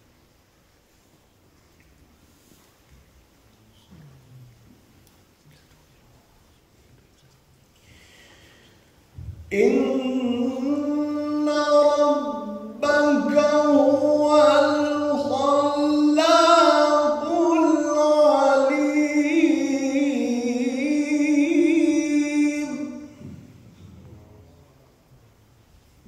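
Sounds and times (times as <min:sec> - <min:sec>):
man reciting melodically: 0:09.1 - 0:25.0.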